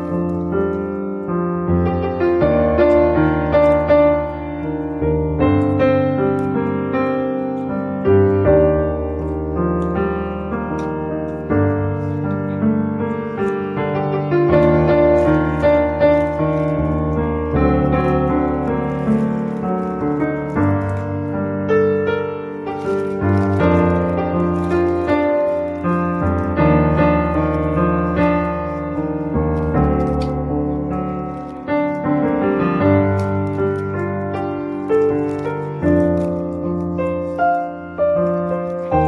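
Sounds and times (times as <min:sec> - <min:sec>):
piano music: 0:00.0 - 0:39.0.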